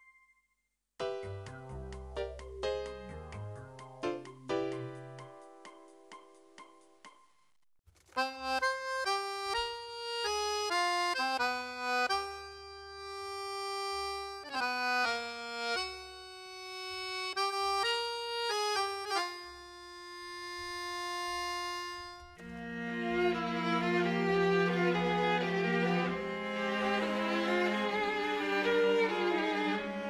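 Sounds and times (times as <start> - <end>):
reedy instrument melody: 8.4 - 30.0.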